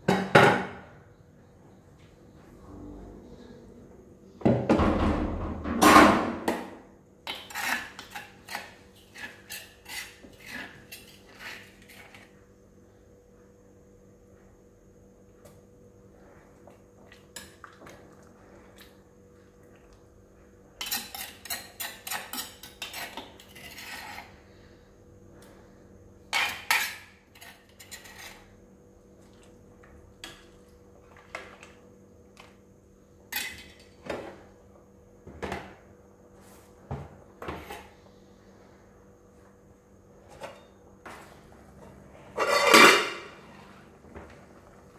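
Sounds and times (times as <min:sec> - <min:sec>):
faint steady hum: 0:00.0 - 0:44.9
spoon clinking and scraping pot: 0:07.3 - 0:12.2, 0:20.8 - 0:24.3, 0:26.3 - 0:28.5, 0:42.4 - 0:43.4.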